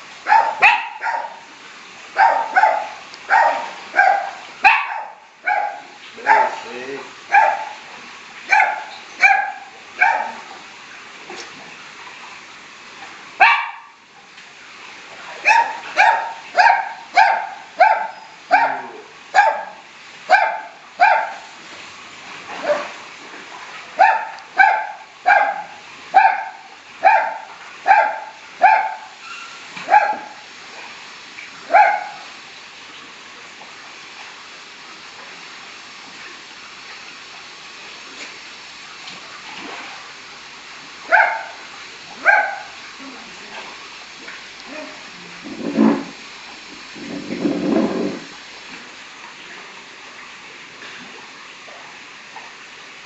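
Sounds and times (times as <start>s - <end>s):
dog barking: 0.2s - 1.5s, 2.2s - 6.7s, 7.3s - 7.8s, 8.5s - 10.5s, 13.4s - 14.0s, 15.4s - 21.5s, 24.0s - 29.2s, 29.8s - 30.4s, 31.7s - 32.3s, 41.1s - 41.6s, 42.2s - 42.8s.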